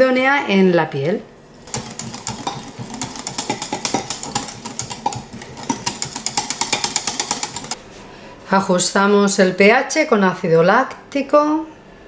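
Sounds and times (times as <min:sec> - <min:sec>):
whisk wires clicking against glass: 0:01.7 - 0:07.8.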